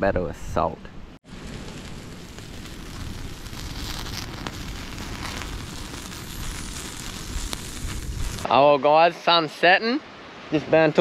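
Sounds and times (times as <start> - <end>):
campfire crackling and popping: 1.2 - 8.5.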